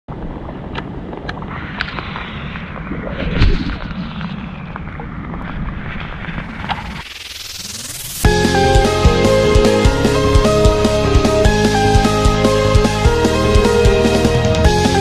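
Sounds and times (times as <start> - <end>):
low rumbling microphone noise: 0.1 - 8.4.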